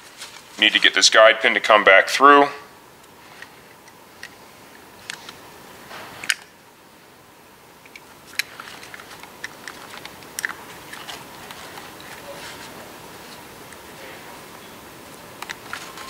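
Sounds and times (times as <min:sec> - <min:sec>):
small clicks of handled parts: 0:07.8 - 0:12.2
hands rustling: 0:08.0 - 0:16.0.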